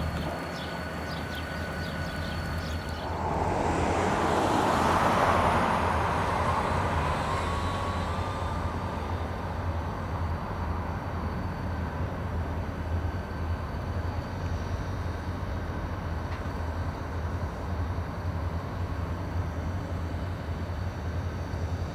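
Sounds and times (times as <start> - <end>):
faint rising whine: 0.0 - 15.0
diesel locomotive engine drone: 0.0 - 21.9
rushing sound: 2.8 - 9.6.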